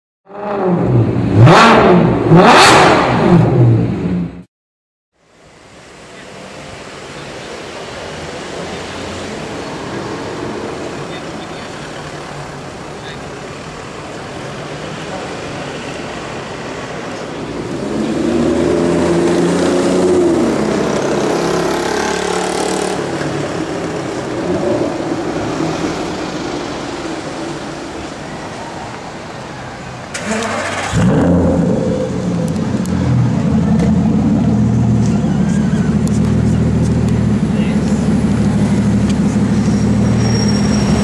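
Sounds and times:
car engine starting and idling: 0:22.8 - 0:41.0
car engine accelerating: 0:30.1 - 0:41.0.

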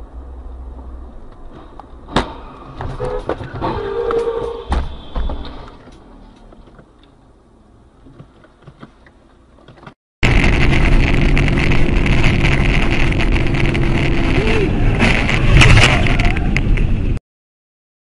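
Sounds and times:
vehicle engine hum: 0:00.0 - 0:17.2
dense rushing noise: 0:10.2 - 0:17.2.

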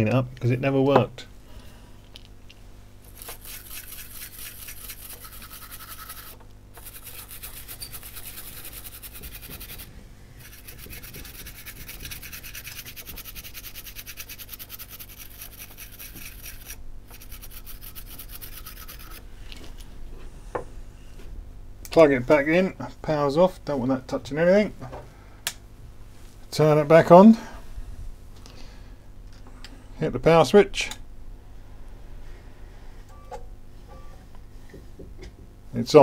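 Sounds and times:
brush scrubbing a circuit board: 0:03.1 - 0:19.2.

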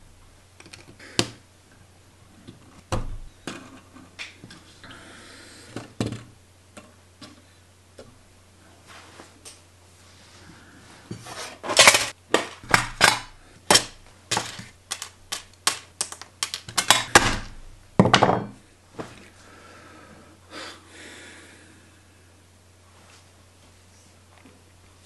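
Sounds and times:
plastic pieces clicking on tabletop: 0:11.8 - 0:17.3.

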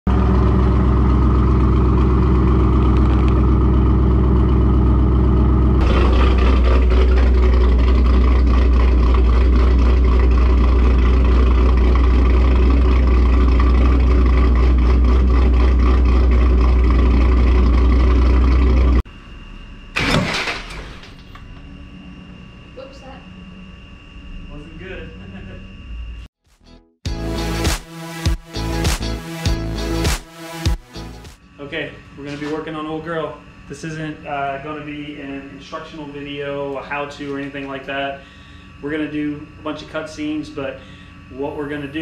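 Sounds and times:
car engine idling: 0:00.1 - 0:19.1.

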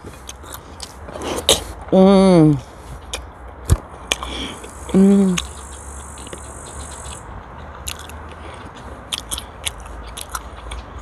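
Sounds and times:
person chewing with wet smacks: 0:00.0 - 0:01.8, 0:03.0 - 0:05.6, 0:07.1 - 0:11.0
high insect buzz: 0:04.7 - 0:07.2
person humming: 0:04.9 - 0:05.5.

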